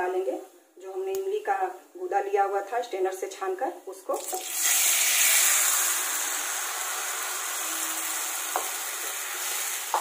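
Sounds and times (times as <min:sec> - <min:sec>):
food sizzling in frying pan: 0:04.2 - 0:10.0.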